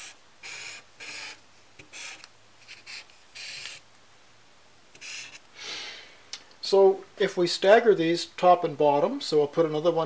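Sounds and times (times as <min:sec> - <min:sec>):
marker scratching on paper: 0:00.0 - 0:03.8, 0:05.0 - 0:05.4.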